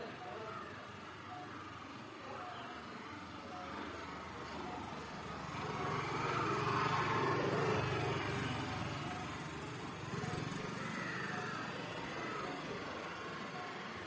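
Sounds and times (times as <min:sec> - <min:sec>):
vehicle engine hum passing: 0:02.9 - 0:14.0.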